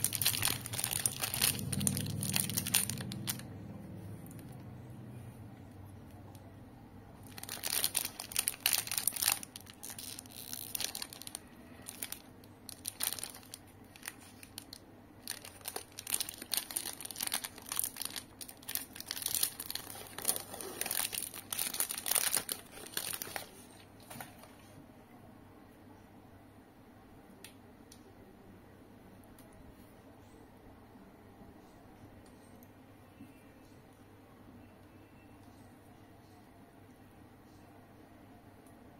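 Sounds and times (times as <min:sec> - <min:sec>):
plastic wrapper crinkling and tearing: 0:00.0 - 0:03.6, 0:07.2 - 0:24.5.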